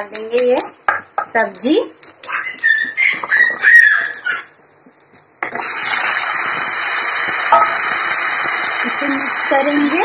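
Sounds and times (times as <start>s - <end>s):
vegetables sizzling in hot oil: 5.4s - 10.0s.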